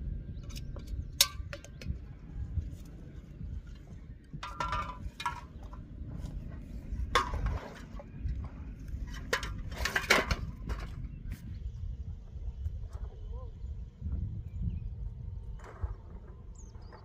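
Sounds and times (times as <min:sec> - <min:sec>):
hard items clinking and clattering: 0:04.3 - 0:05.9.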